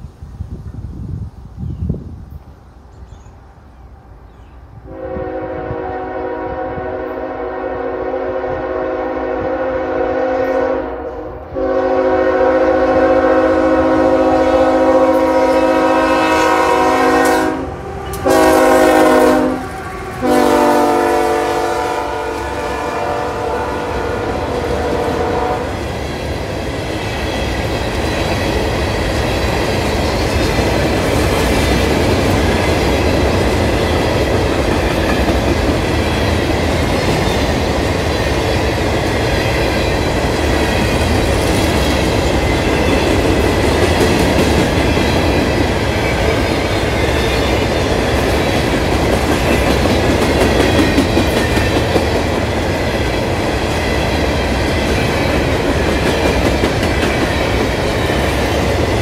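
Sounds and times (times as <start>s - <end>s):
locomotive air horn: 4.9s - 25.8s.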